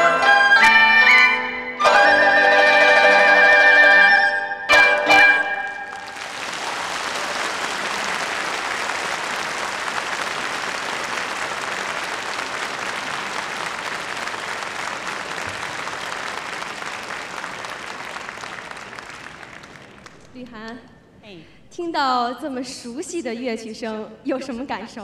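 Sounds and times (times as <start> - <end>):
traditional instrument ensemble: 0.0 - 6.0
audience applauding: 5.4 - 20.4.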